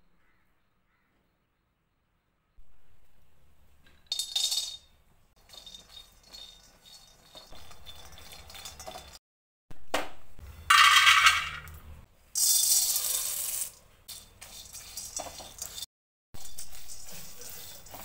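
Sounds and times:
nuts clattering into a steel bowl: 4.0s - 9.2s, 10.7s - 11.8s, 12.4s - 15.8s, 16.4s - 18.0s
nuts rattling in a steel wok: 4.1s - 4.8s, 5.4s - 9.2s, 10.7s - 11.7s, 12.4s - 18.0s.

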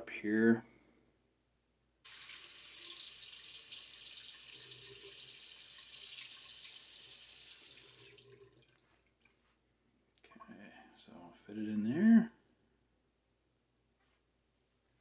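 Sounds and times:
faucet water splashing into basin: 2.1s - 8.9s.

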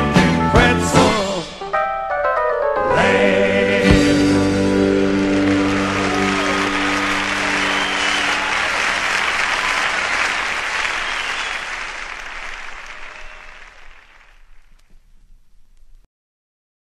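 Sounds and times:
crowd cheering and applauding: 4.0s - 14.7s.

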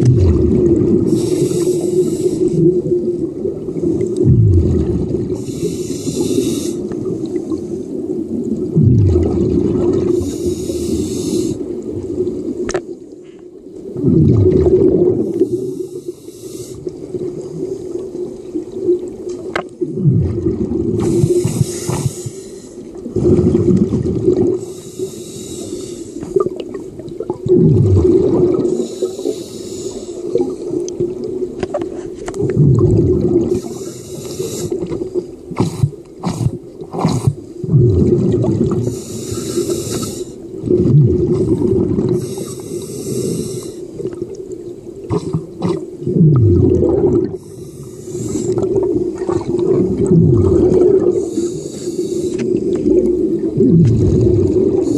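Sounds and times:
rush of bubbles: 0.0s - 12.7s, 13.8s - 15.9s, 16.8s - 25.6s, 26.2s - 31.6s, 32.3s - 34.0s, 34.6s - 51.6s, 52.4s - 54.9s
regulator hiss on inhale: 1.1s - 2.8s, 5.4s - 7.9s, 10.1s - 11.8s, 15.3s - 17.1s, 21.0s - 23.0s, 24.6s - 26.4s, 28.7s - 30.8s, 33.5s - 37.4s, 38.8s - 40.6s, 41.3s - 44.1s, 47.4s - 48.8s, 51.1s - 52.8s.

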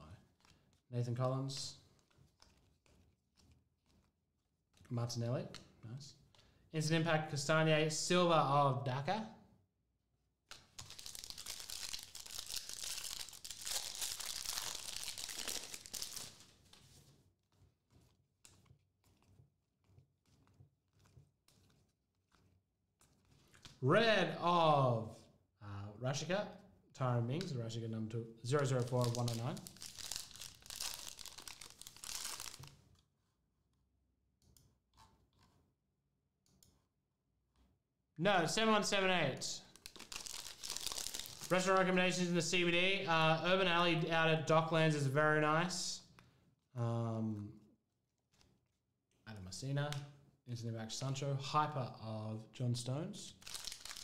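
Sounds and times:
cards being handled: 0.2s - 4.9s, 10.5s - 23.9s, 28.5s - 33.0s, 39.7s - 42.8s, 53.4s - 54.0s
foil wrapper tearing and crinkling: 10.5s - 23.8s, 28.5s - 33.0s, 38.6s - 42.7s, 53.3s - 54.0s.

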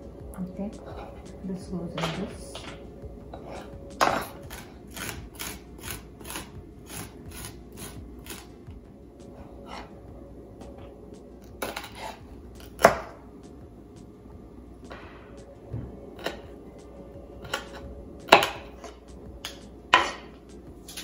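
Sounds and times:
garlic grated on metal grater: 4.0s - 8.5s.

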